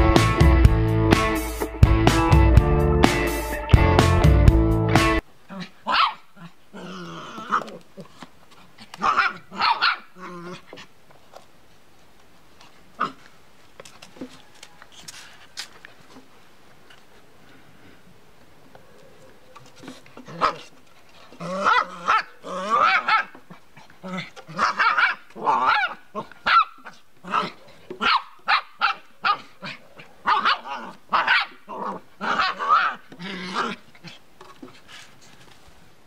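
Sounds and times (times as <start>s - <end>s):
small dog growling: 6.4s - 8.1s, 10.2s - 10.9s, 18.8s - 24.8s, 25.4s - 27.9s, 29.4s - 34.2s.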